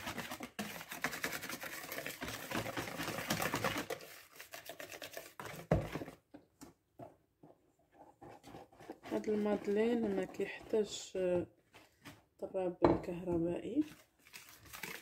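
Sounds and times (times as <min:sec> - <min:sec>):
wire whisk scraping a bowl: 0:08.2 - 0:11.2.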